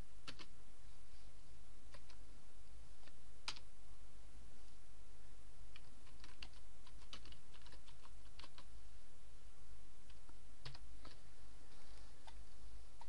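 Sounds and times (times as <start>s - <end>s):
steady low hum: 0.0s - 13.0s
computer keyboard typing: 0.2s - 0.5s, 1.9s - 2.2s, 3.0s - 3.7s, 5.7s - 8.7s, 10.1s - 11.2s.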